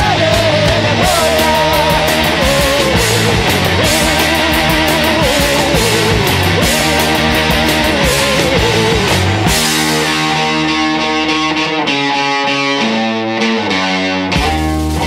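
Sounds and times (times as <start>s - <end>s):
steady drum beat: 0.0s - 11.0s
wavering electric guitar lead: 0.0s - 15.0s.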